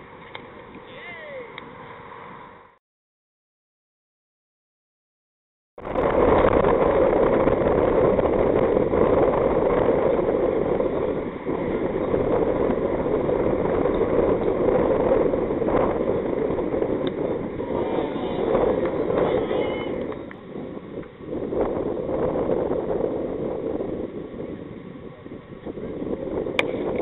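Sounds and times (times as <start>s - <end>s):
steady rushing noise: 5.8s - 27.0s.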